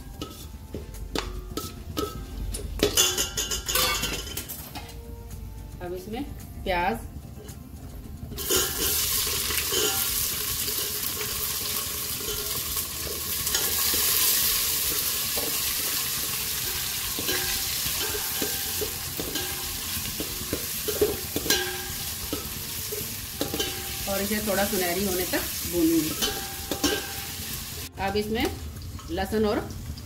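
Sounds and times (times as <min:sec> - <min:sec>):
ladle knocking and scraping pot: 0:00.1 - 0:05.0, 0:08.3 - 0:24.5, 0:26.0 - 0:27.4
onions sizzling in hot fat: 0:08.3 - 0:30.0.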